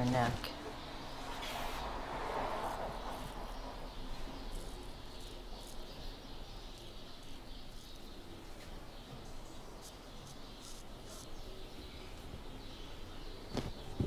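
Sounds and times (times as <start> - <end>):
razor scraping stubble: 1.3 - 8.8, 9.4 - 12.2.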